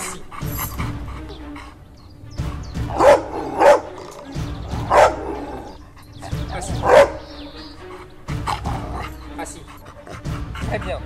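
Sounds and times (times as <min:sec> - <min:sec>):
dog barking: 0:02.8 - 0:09.2.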